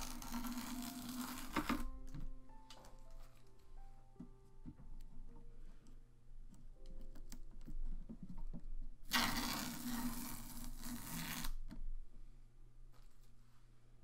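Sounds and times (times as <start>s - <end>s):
canvas panel scraping: 9.1s - 11.6s.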